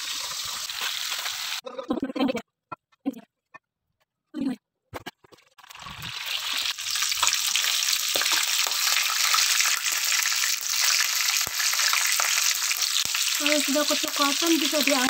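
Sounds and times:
chicken deep-frying in oil: 0.0 - 1.6, 5.6 - 15.0.

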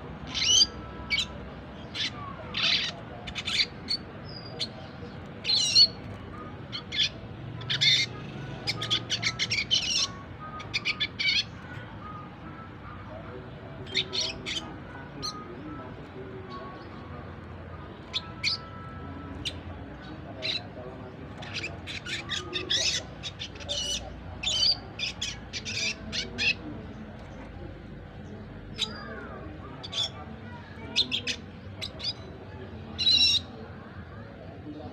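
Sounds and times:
young bird twittering: 0.2 - 6.0, 6.7 - 12.4, 13.8 - 15.8, 18.0 - 26.7, 33.0 - 33.6.

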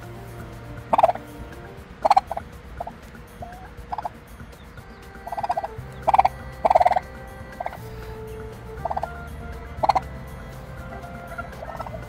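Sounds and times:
turkey calling: 0.0 - 12.0.

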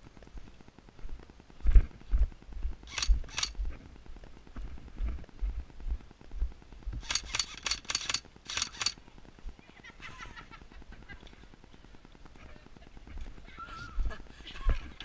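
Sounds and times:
airsoft rifle shots: 7.0 - 9.0.

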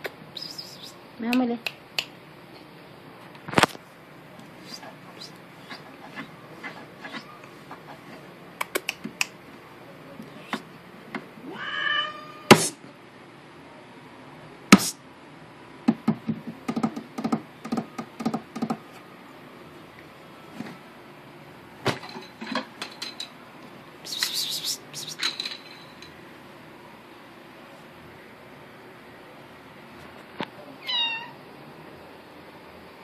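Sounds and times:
cat crying: 11.4 - 12.6, 30.8 - 31.4.

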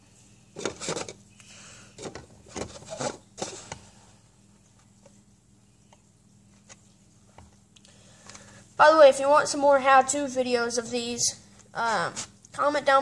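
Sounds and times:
low steady hum: 0.0 - 13.0
knife scraping plastic lid: 2.0 - 3.8.

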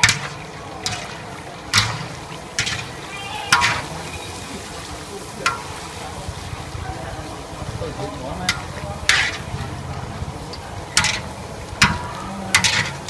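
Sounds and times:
oil sizzling in a wok: 0.0 - 13.0
skimmer scraping metal pan: 7.9 - 10.0, 10.9 - 13.0.

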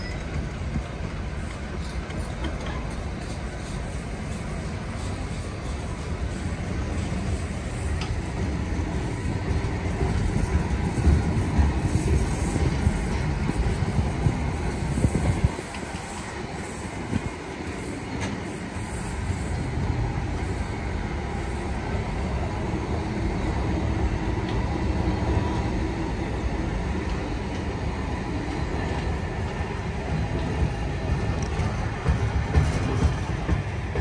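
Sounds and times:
freight train wheels rolling: 0.0 - 34.0.

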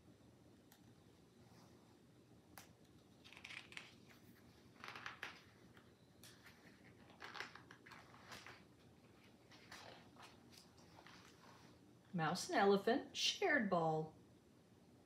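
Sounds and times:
paper pages rustling: 3.2 - 11.8.

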